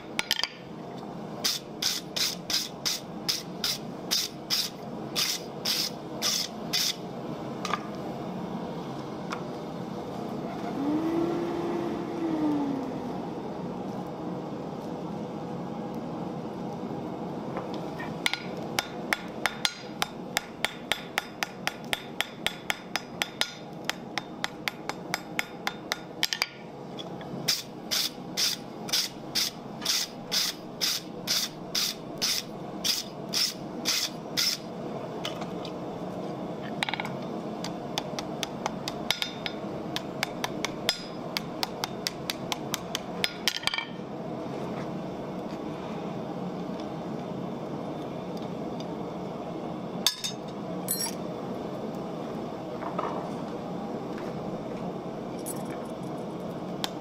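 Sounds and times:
hammer striking steel on anvil: 0:18.3 - 0:26.6, 0:50.1 - 0:51.2.

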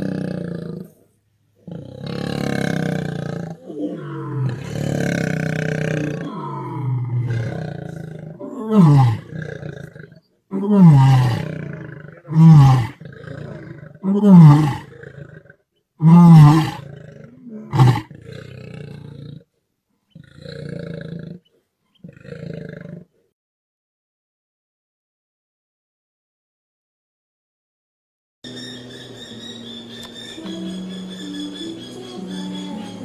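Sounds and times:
lion grunting: 0:00.0 - 0:01.0, 0:01.6 - 0:19.5, 0:20.1 - 0:23.1
lion roaring: 0:00.0 - 0:01.0, 0:01.6 - 0:19.5, 0:20.2 - 0:21.4, 0:22.0 - 0:23.1.

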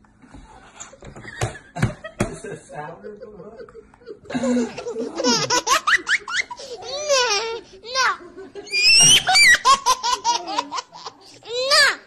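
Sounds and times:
high-pitched laughter: 0:03.8 - 0:12.0.

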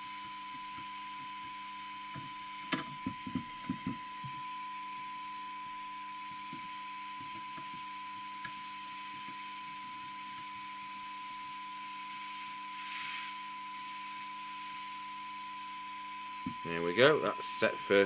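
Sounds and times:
steady test tone: 0:00.0 - 0:18.0
hiss: 0:12.8 - 0:13.6.

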